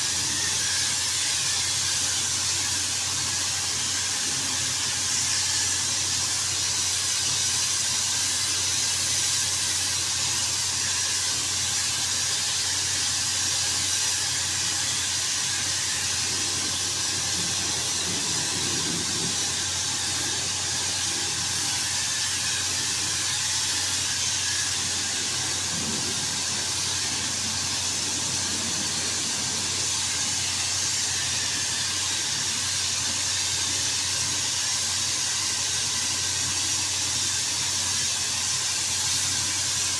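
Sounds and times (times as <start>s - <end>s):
paint spray gun hissing: 0.0s - 39.9s
steady low hum: 15.2s - 32.7s.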